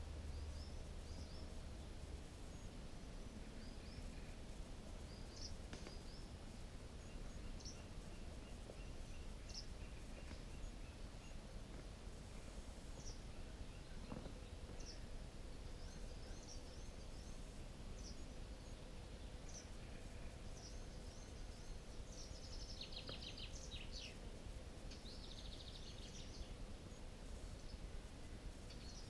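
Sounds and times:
low background hum: 0:00.0 - 0:29.0
songbird chirps and trills: 0:00.0 - 0:29.0.

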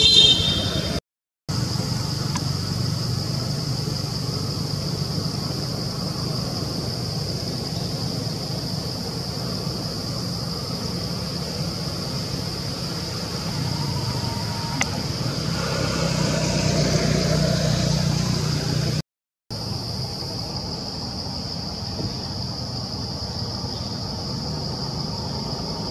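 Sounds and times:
low rumble of passing vehicle: 0:00.4 - 0:19.0.

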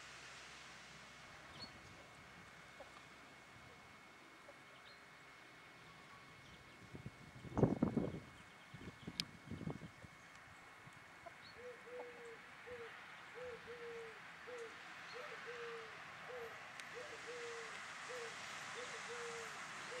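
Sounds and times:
dove cooing: 0:11.6 - 0:20.0.

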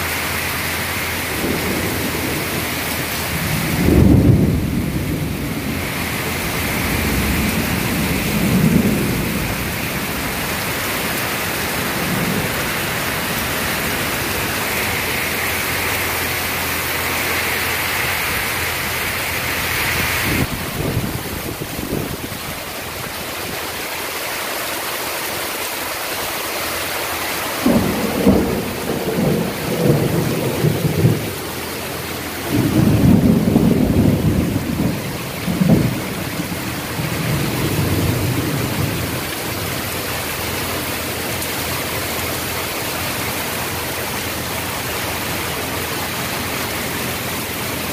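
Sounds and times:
heavy rain pouring: 0:00.0 - 0:47.9
low choppy rumbles: 0:01.2 - 0:23.7.

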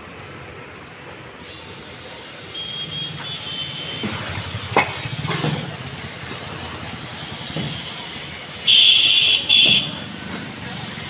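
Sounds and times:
sharp knocks and clatters: 0:04.0 - 0:06.5.

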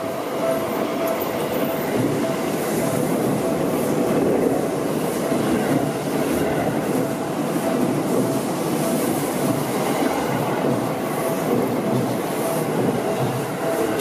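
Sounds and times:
electric train passing: 0:00.0 - 0:14.0.

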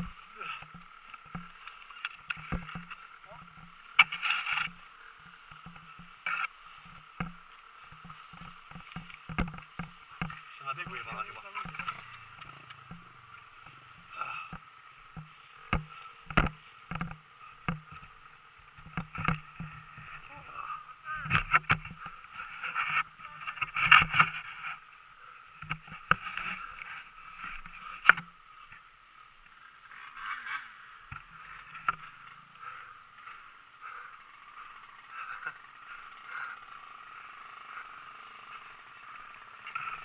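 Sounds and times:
dirt bike engine running unevenly: 0:00.0 - 0:40.0
sharp knocks and clicks: 0:05.5 - 0:18.1, 0:18.7 - 0:20.2.

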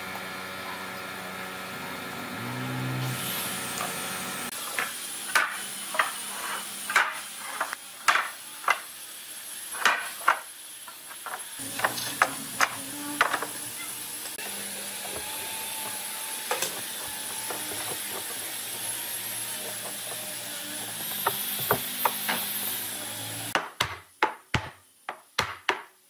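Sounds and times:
boards and clamps knocking: 0:09.8 - 0:10.5, 0:11.2 - 0:13.6, 0:16.4 - 0:18.8, 0:19.6 - 0:22.5, 0:23.5 - 0:26.0
steady hum: 0:11.6 - 0:14.8.

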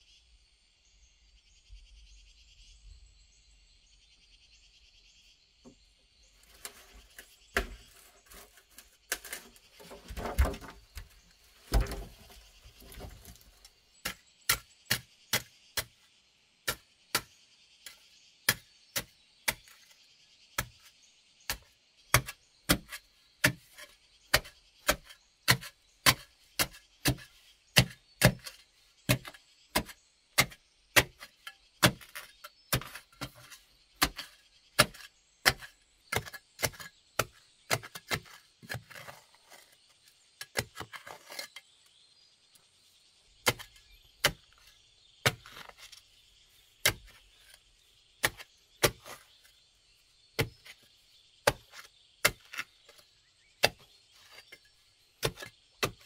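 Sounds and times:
scraping in loose dirt: 0:06.2 - 0:56.0
digging blade striking gravelly earth: 0:06.6 - 0:13.4, 0:21.5 - 0:39.8, 0:43.4 - 0:49.7, 0:50.3 - 0:54.6, 0:55.2 - 0:56.0.

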